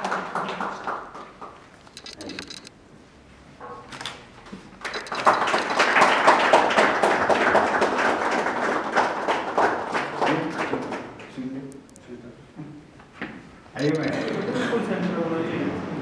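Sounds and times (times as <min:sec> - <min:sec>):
group of people clapping: 0:00.0 - 0:01.7, 0:04.8 - 0:11.4.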